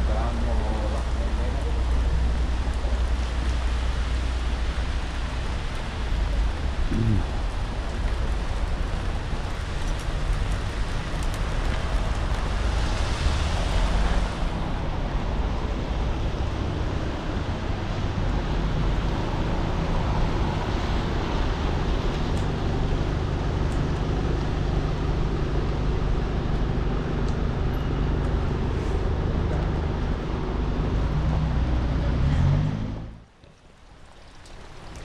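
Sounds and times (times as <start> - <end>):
car tyres hissing on wet road: 0.0 - 27.6
steady rain: 0.0 - 35.0.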